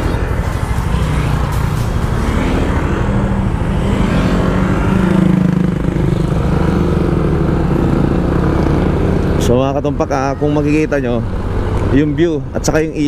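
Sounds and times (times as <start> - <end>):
motorcycle engine running: 0.0 - 10.5
other motorcycles: 0.0 - 13.0.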